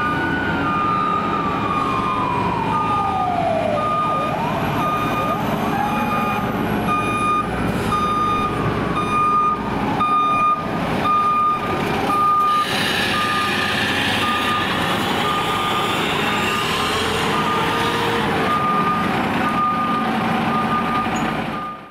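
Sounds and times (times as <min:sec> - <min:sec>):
fire engine running: 0:00.0 - 0:21.9
reverse alarm beeping: 0:04.8 - 0:13.5.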